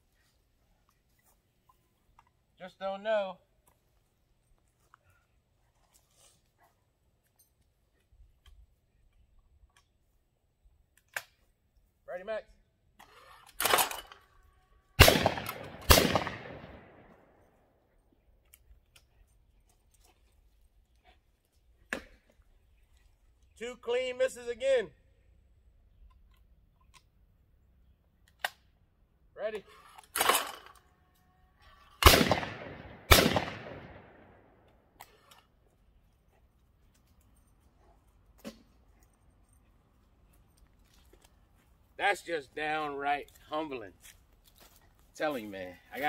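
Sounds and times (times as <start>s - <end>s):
gunshot echo: 15.0s - 17.1s, 32.0s - 34.4s
shotgun shots: 15.0s - 17.1s, 32.0s - 34.4s.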